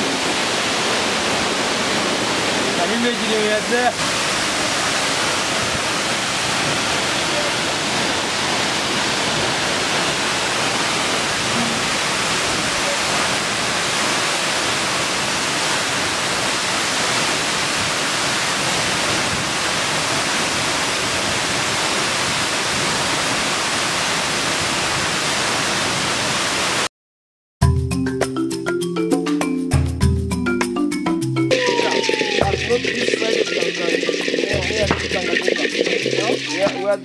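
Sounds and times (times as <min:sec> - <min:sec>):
waterfall rushing: 0:00.0 - 0:26.9, 0:31.5 - 0:37.0
marimba-like music: 0:27.6 - 0:37.0.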